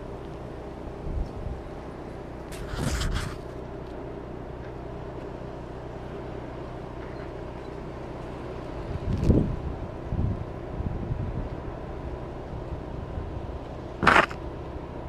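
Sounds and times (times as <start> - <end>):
low motor hum: 0.0 - 15.0
gritty scrape: 2.5 - 3.6, 14.0 - 14.4.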